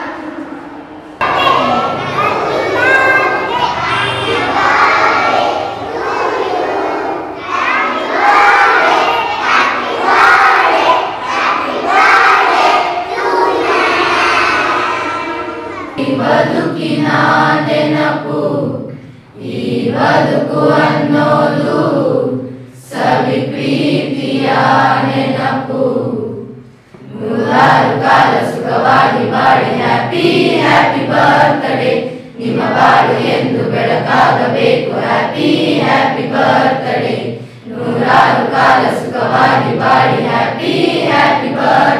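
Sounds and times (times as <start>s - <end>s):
students singing in unison: 0.0s - 41.9s
young children singing: 0.0s - 41.9s.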